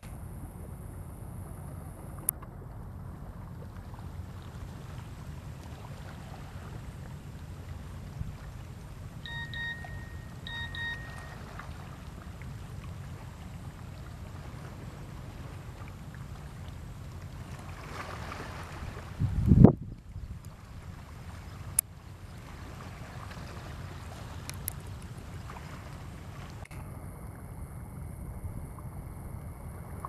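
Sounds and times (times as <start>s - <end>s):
wind rumble on microphone: 0.0s - 30.0s
short high whistled tones: 9.3s - 11.5s.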